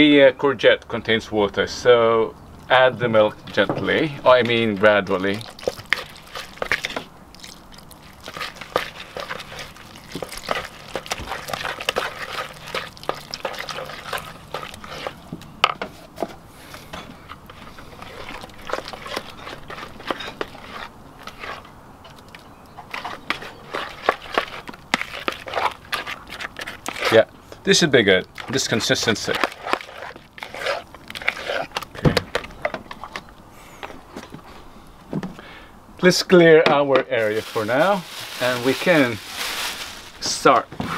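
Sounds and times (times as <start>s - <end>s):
plastic fork scraping bowl: 3.5s - 7.1s, 8.2s - 15.2s, 17.3s - 27.3s, 28.4s - 33.3s.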